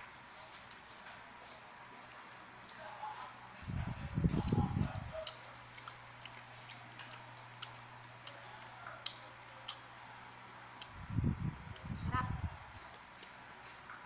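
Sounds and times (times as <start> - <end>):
faint low hum: 0.0 - 13.4
mouth clicks and smacks chewing: 4.3 - 11.0.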